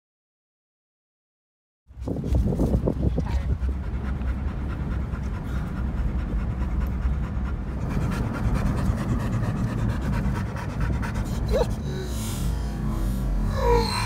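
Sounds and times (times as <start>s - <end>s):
truck engine and road rumble: 1.9s - 14.0s
dog panting: 2.0s - 12.1s.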